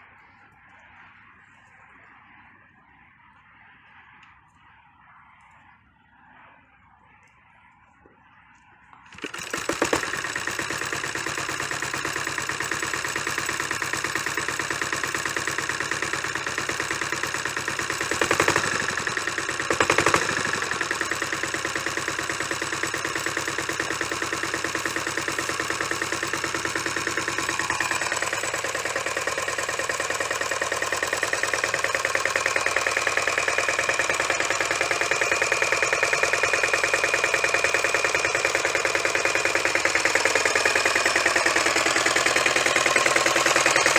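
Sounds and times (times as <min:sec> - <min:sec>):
tractor engine running: 0:00.0 - 0:02.6, 0:07.9 - 0:43.9
recoil starter pull: 0:08.9 - 0:43.9.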